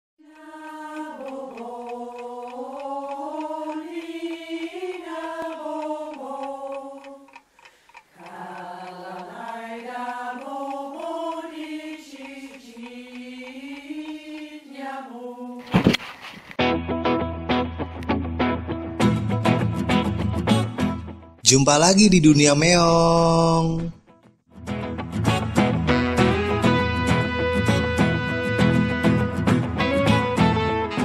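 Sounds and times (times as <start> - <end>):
chanted singing: 0.2 - 7.4, 8.2 - 15.6
faint steady ticking: 0.2 - 14.8.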